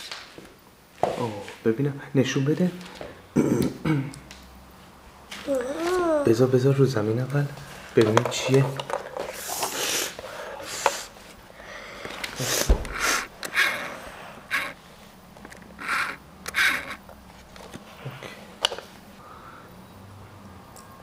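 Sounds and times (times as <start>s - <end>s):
breathy sniffs: 9.4s - 13.3s.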